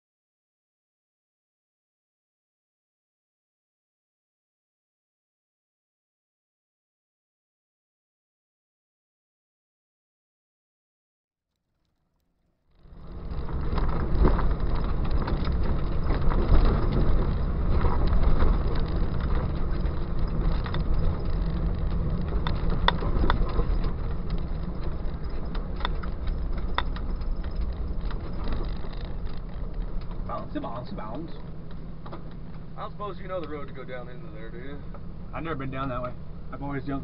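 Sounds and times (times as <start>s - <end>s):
vehicle rumbling on dirt trail: 12.7s - 37.0s
knocks and rattles: 12.8s - 32.6s.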